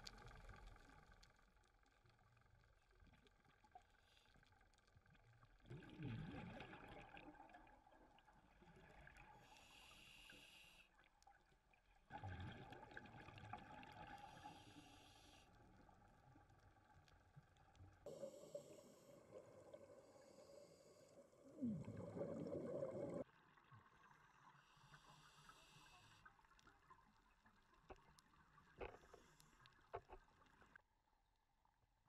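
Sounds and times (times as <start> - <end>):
exhaled bubbles underwater: 5.6 - 9.6, 12.1 - 14.8, 18.0 - 24.5
regulator inhale hiss: 9.4 - 10.9, 14.2 - 15.5, 18.1 - 21.6, 24.7 - 26.3.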